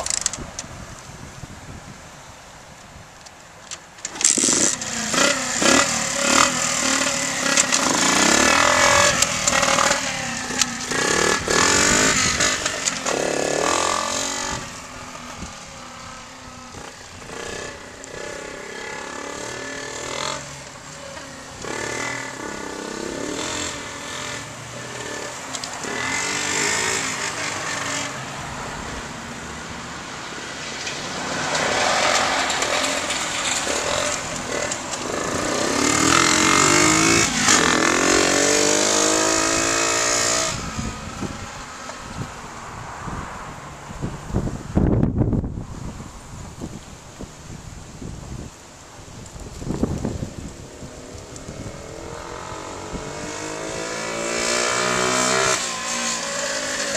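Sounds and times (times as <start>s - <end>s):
dirt bike engine revving: 4.1s - 15.8s, 16.6s - 28.3s, 31.0s - 41.6s, 51.3s - 56.9s.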